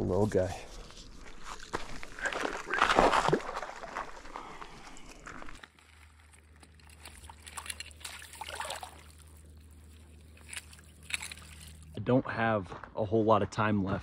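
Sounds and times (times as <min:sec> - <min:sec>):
fish splashing in water: 0:06.0 - 0:11.9.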